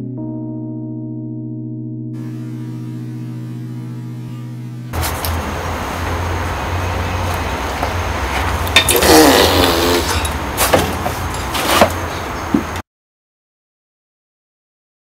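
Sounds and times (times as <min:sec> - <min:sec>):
brief wavering pitched sound: 0:02.2 - 0:05.0.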